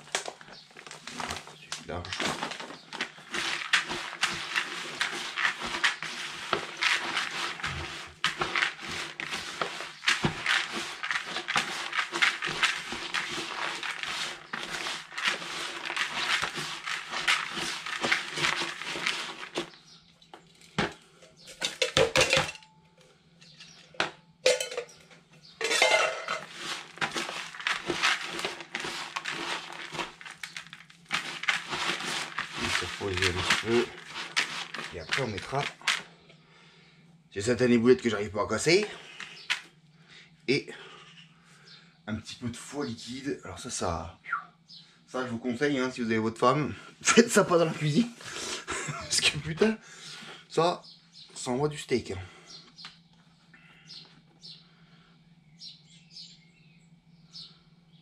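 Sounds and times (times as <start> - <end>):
gritty grains rattling in bucket: 0.0 - 22.5, 24.5 - 36.2, 37.4 - 39.8, 47.0 - 50.7.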